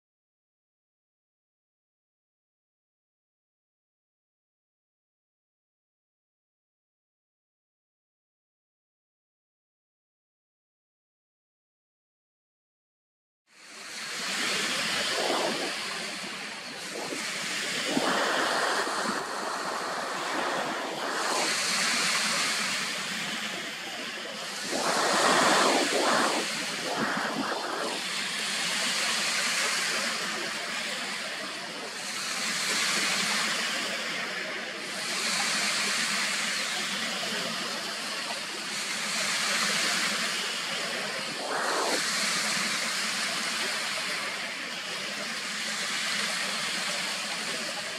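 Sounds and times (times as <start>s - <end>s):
lake waves washing on shore: 13.6s - 47.9s.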